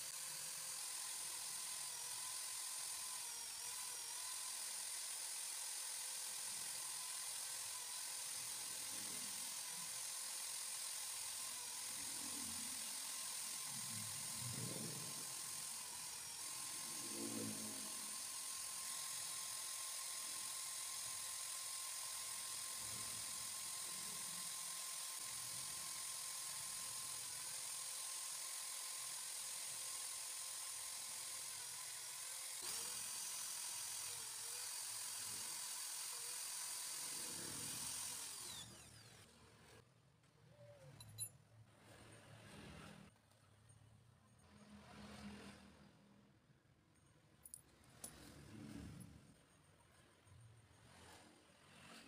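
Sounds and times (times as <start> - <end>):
electric drill whining: 0.0 - 39.8.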